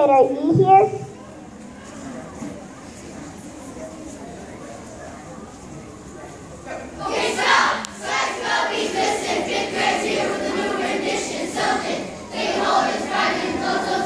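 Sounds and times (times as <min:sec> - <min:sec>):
children chanting in unison: 0:07.0 - 0:14.0.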